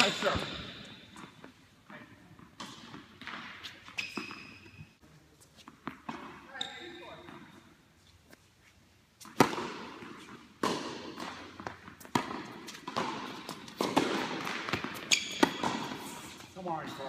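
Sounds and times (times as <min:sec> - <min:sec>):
tennis balls struck by rackets: 0:02.4 - 0:04.7, 0:09.2 - 0:16.5.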